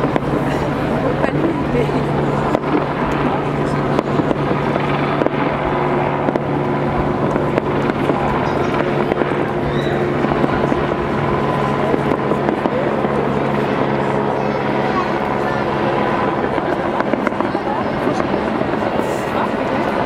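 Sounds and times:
constant low hum: 0:00.0 - 0:20.0
fireworks bursting and crackling: 0:00.0 - 0:20.0.

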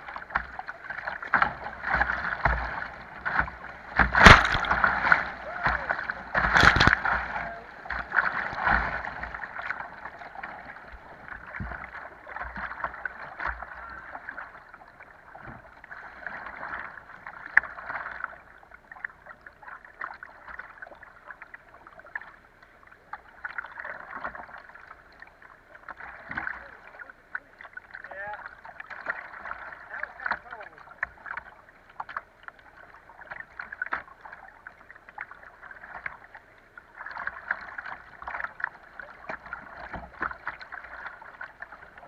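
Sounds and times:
wave washing over camera: 0:00.0 - 0:14.4.

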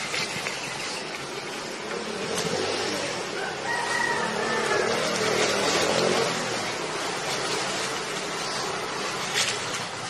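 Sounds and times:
outdoor background noise: 0:00.0 - 0:10.0
drawn-out animal call: 0:03.0 - 0:07.6.

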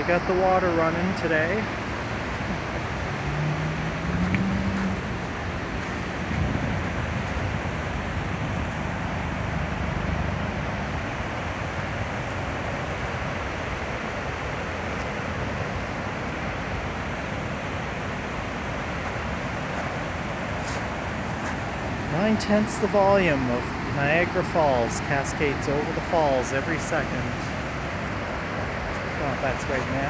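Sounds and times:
large waterfall rushing: 0:00.0 - 0:30.0.

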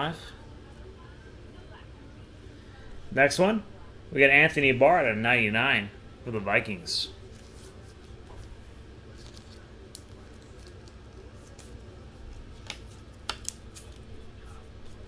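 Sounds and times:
low steady hum: 0:00.0 - 0:15.0
packaging rustling: 0:07.2 - 0:14.1
trading cards clicking: 0:12.5 - 0:14.1.

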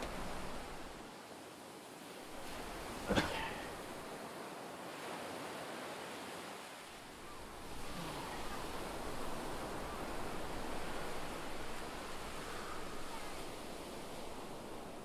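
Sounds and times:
sea surf on sandy beach: 0:00.0 - 0:15.0
wind: 0:00.0 - 0:15.0.

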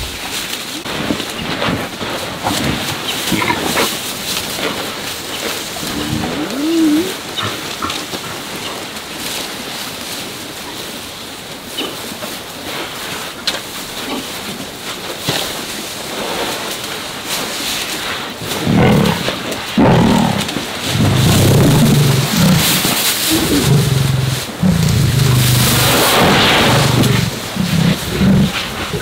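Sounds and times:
lions growling and snarling: 0:02.4 - 0:09.0, 0:18.4 - 0:29.0.

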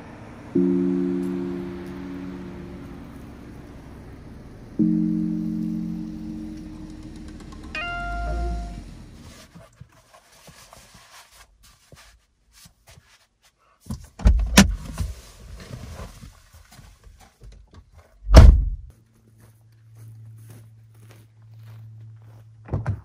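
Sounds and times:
car door shutting thud: 0:18.3 - 0:18.8.

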